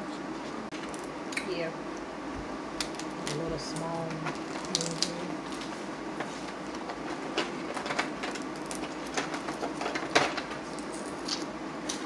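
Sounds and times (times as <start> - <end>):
steady background hum: 0.0 - 12.0
crab shells cracking: 2.8 - 5.6, 7.7 - 12.0.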